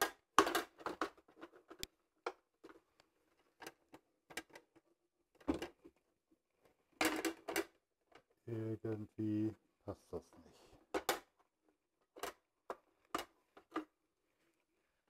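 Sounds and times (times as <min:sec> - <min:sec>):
plastic guard clicking and knocking: 0:00.0 - 0:02.8, 0:03.5 - 0:06.0, 0:10.9 - 0:11.5.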